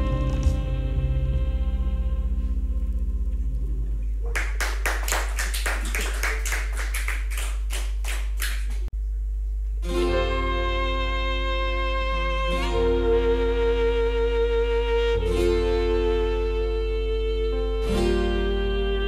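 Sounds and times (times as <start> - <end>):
fiddle bowed notes: 0.0 - 2.8, 9.9 - 19.0
low hum: 0.0 - 17.8
people applauding: 4.2 - 8.9.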